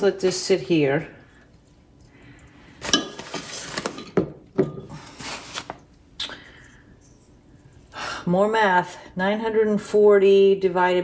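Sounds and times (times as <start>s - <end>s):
glassware clinking on a countertop: 2.8s - 4.9s
paper bag rustling: 3.2s - 4.0s, 5.0s - 5.8s.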